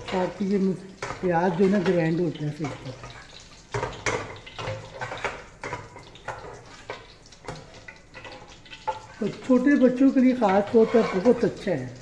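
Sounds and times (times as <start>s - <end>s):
metal spoon scraping a pan: 0.0s - 11.9s
faint sizzling oil: 0.0s - 12.0s.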